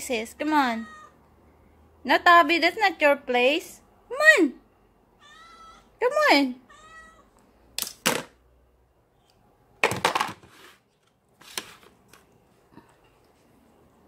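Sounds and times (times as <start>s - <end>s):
bowls knocking on plastic tray: 9.8s - 10.4s.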